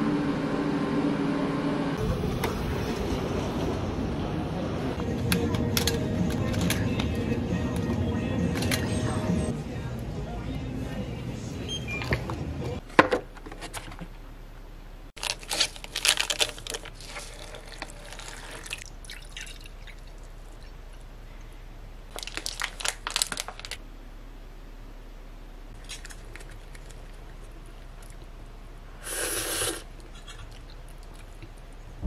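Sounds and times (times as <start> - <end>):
foil lid and plastic crinkling: 15.2 - 18.8, 22.1 - 23.8
liquid pouring into a glass: 17.4 - 20.2.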